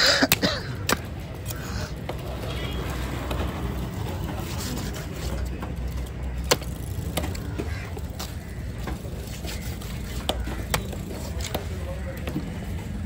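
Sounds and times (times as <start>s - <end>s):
low hum of passing traffic: 0.0s - 13.0s.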